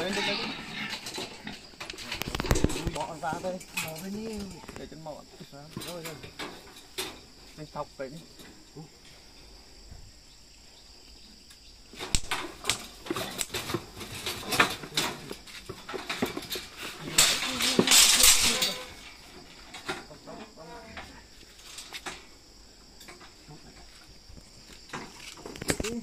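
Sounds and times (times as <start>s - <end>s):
steel cage rattling and clanking: 0.0s - 7.3s, 12.0s - 22.3s.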